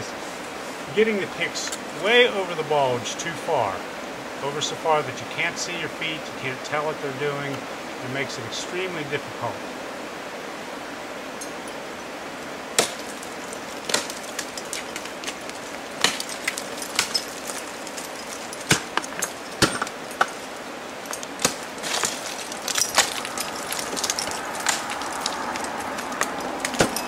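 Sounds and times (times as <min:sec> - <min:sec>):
steady hiss: 0:00.0 - 0:27.0
crampons kicking ice: 0:12.8 - 0:20.4, 0:21.3 - 0:27.0
ice axe striking ice: 0:12.8 - 0:20.4, 0:21.1 - 0:27.0
carabiners clinking: 0:13.0 - 0:27.0.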